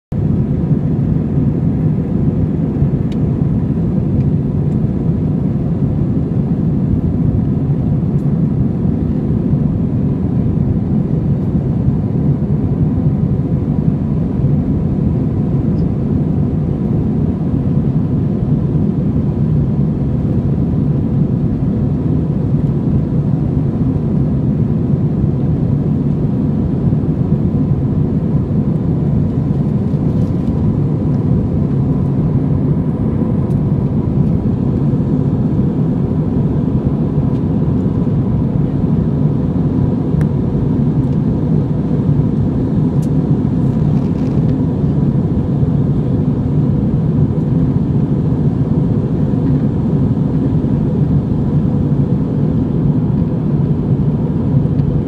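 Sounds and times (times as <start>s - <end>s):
jet engine cabin roar: 0.1s - 55.0s
faint thin whine: 42.9s - 45.0s.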